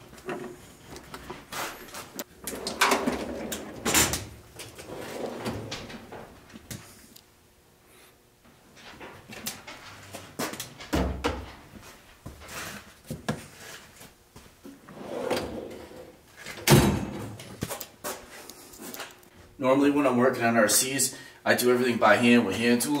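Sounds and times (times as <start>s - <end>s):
metal drawer sliding shut: 2.5s - 6.3s, 14.9s - 17.3s.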